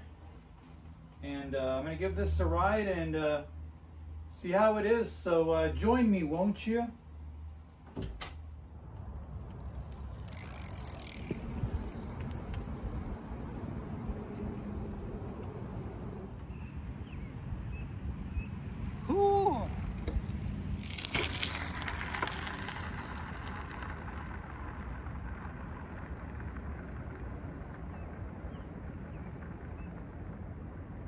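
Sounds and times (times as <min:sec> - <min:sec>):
steady low rumble: 0:08.4 - 0:31.0
bike tyres crunching on gravel: 0:08.9 - 0:14.9, 0:18.3 - 0:31.0.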